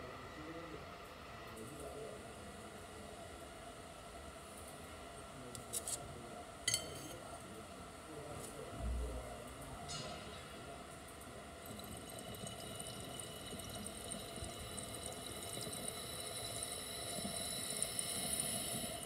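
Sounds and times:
water bubbling in glass pipe: 10.5s - 19.0s.

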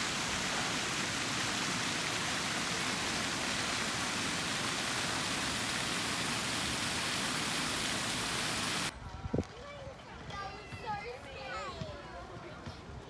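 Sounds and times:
fountain jets splashing into pool: 0.0s - 8.9s.

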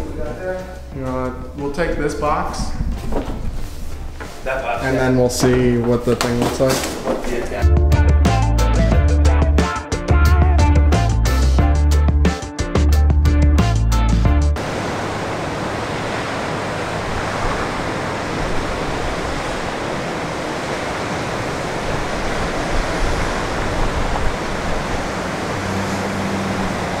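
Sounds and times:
ocean surf breaking: 14.6s - 27.0s.

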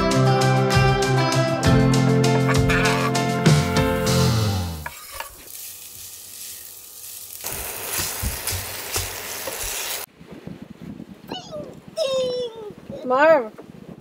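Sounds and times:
meat sizzling in frying pan: 3.9s - 10.1s.

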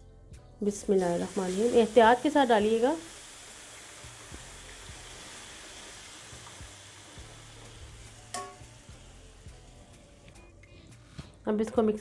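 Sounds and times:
semolina sizzling in a pan: 0.6s - 11.1s.

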